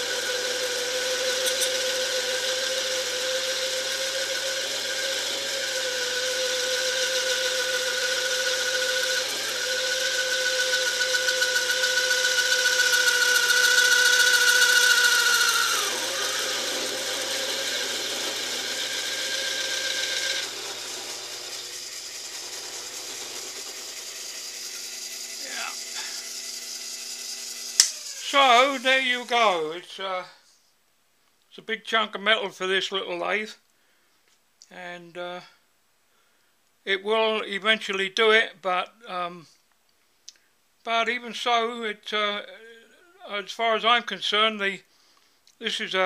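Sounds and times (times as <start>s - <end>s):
lathe motor whining: 0.0s - 29.8s
tool cutting steel bar: 0.0s - 29.8s.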